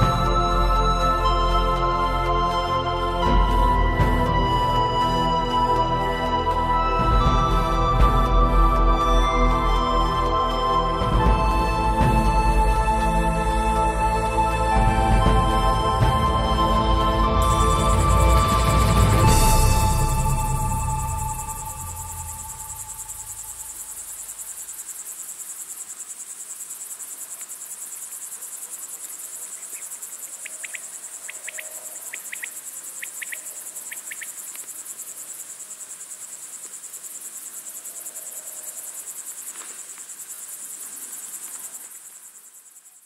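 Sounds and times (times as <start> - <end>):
music: 0.0 - 24.0
insects chirping: 0.0 - 43.0.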